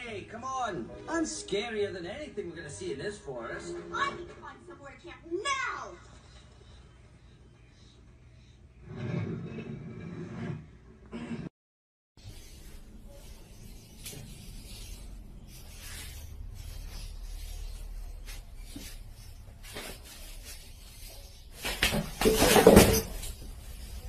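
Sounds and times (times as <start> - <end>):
chair scraping on tiled floor: 8.8 - 11.5, 15.8 - 24.0
chair crashing over: 21.6 - 23.5.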